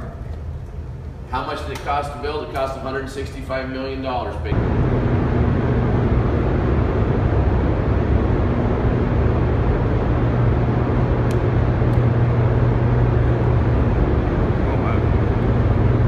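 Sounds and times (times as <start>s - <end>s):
generators humming: 0.0s - 16.0s.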